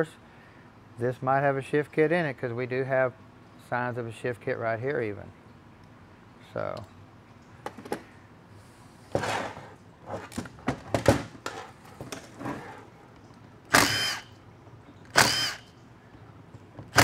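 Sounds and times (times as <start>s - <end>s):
power driver whining: 13.7s - 14.4s, 15.1s - 15.7s.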